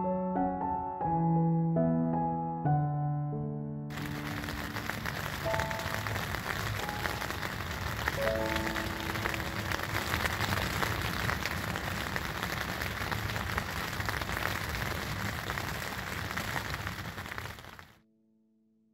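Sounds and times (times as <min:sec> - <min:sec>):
steady rainfall: 0:03.9 - 0:17.9.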